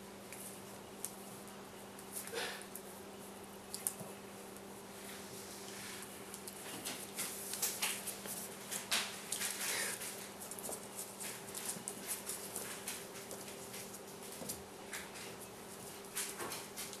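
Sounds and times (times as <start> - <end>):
puppies scuffling: 0.2 - 17.0.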